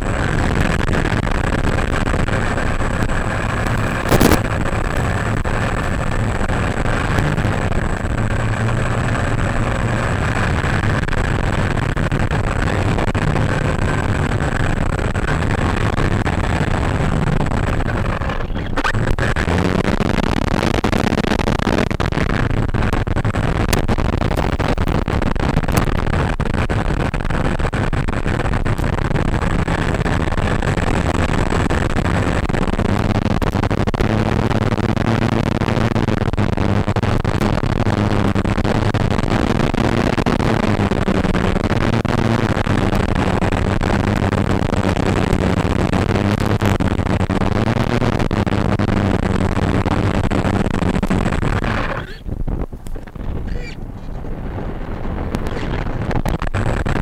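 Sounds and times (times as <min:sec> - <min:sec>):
constant noisy hiss: 0:00.0 - 0:57.0.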